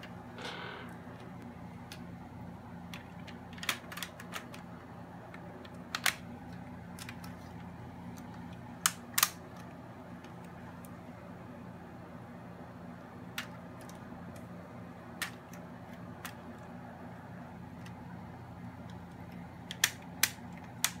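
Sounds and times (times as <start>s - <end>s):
steady low hum: 0.0s - 21.0s
sharp plastic clicks and snaps: 2.9s - 4.7s, 5.3s - 7.4s, 8.1s - 11.0s, 13.4s - 14.5s, 15.2s - 16.7s, 18.8s - 21.0s.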